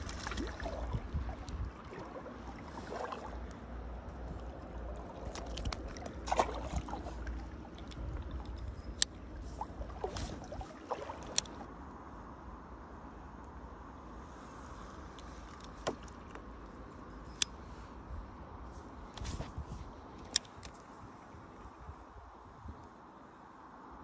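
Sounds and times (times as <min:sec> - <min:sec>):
river water trickling: 0:00.0 - 0:11.7, 0:14.0 - 0:21.9
fishing tackle clicks: 0:03.5 - 0:09.2, 0:11.2 - 0:11.6, 0:20.2 - 0:20.8.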